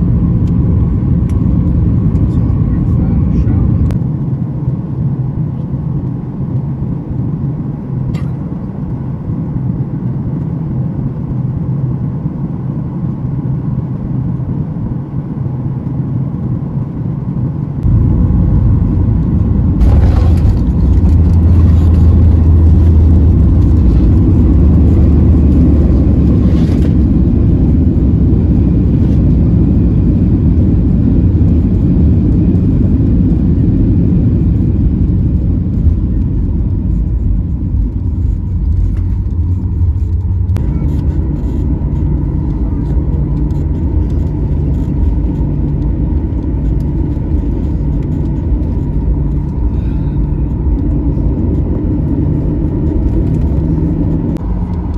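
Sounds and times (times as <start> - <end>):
cabin engine and air noise: 0.0 - 54.9
reverse thrust roar with whine: 0.0 - 54.9
wheels touching runway rumble: 17.8 - 54.9.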